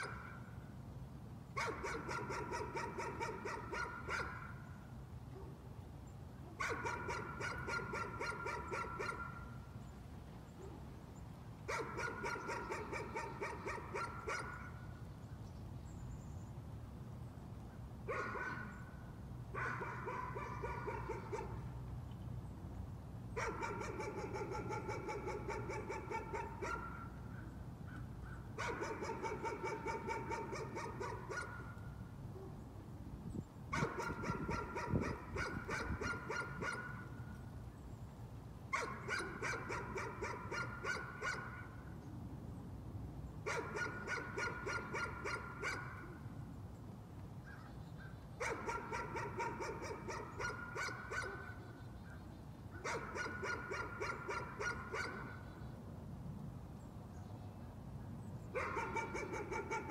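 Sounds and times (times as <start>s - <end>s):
dog barking: 1.6s - 4.6s, 6.6s - 9.4s, 11.7s - 14.7s, 18.1s - 18.7s, 19.6s - 21.6s, 23.4s - 27.1s, 28.6s - 31.7s, 33.8s - 37.0s, 38.7s - 41.7s, 43.5s - 46.1s, 48.4s - 51.7s, 52.8s - 55.4s, 58.6s - 59.9s.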